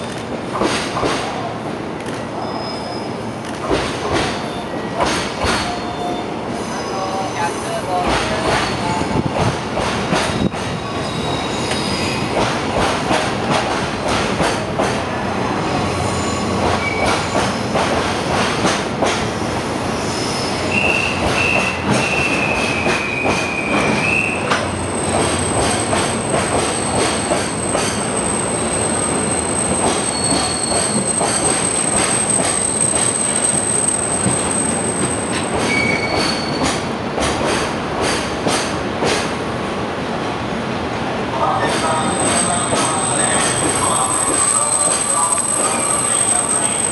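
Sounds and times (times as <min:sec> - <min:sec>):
train wheels clattering over rail joints: 0:00.0 - 0:01.3, 0:03.4 - 0:04.4, 0:05.0 - 0:05.7, 0:08.0 - 0:10.8, 0:11.7 - 0:15.0, 0:16.6 - 0:19.3, 0:20.8 - 0:28.2, 0:29.6 - 0:39.4
high wheel squeal: 0:02.4 - 0:03.2, 0:05.6 - 0:07.8, 0:10.3 - 0:12.3, 0:26.7 - 0:36.8, 0:41.9 - 0:46.9.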